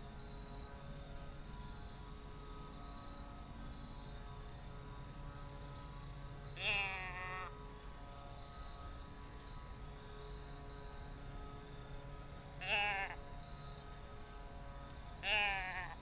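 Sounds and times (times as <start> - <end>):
deer bleat call: 6.6 - 7.5, 12.6 - 13.2, 15.2 - 16.0.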